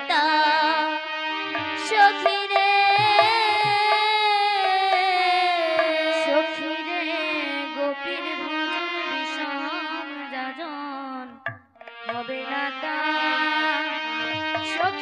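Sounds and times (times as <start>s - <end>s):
sustained melody instrument: 0.0s - 15.0s
light taps: 14.4s - 14.8s.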